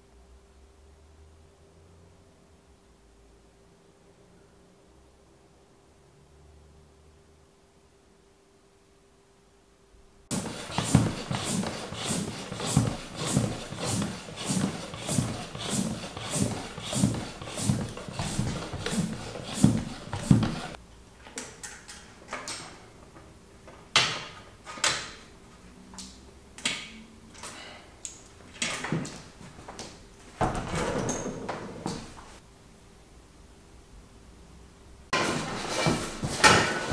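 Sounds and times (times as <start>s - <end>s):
regular strokes: 10.3s - 20.8s.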